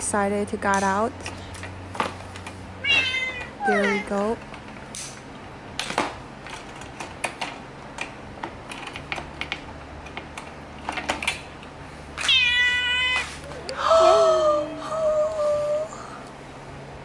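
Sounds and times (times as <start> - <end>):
kitten meowing loudly: 2.8 - 4.0, 12.2 - 13.3.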